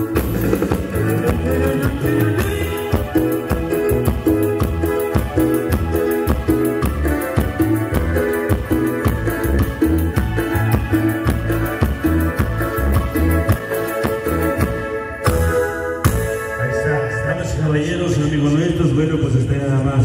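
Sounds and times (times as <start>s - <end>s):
dance music over sound system: 0.0s - 15.5s.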